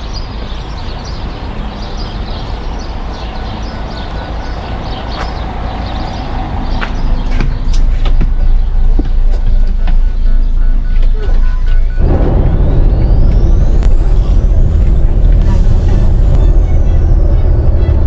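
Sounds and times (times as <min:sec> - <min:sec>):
vehicle road noise: 0:00.0 - 0:18.0.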